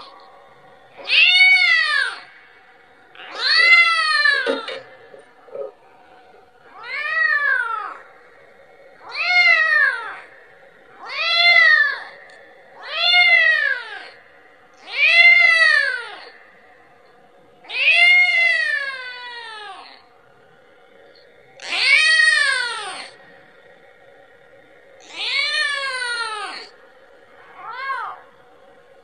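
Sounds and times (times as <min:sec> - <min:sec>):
kitten meowing: 0:03.2 - 0:04.8.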